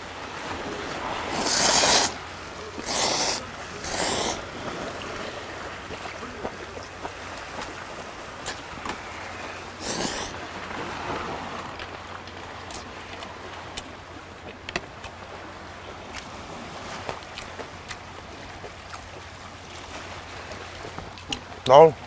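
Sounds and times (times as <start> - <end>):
sea waves: 0.0 - 22.0
wind: 0.0 - 22.0
man slurping noodles: 1.2 - 2.2, 2.8 - 4.5, 9.8 - 10.4
chewing with sharp clicks: 17.3 - 18.0.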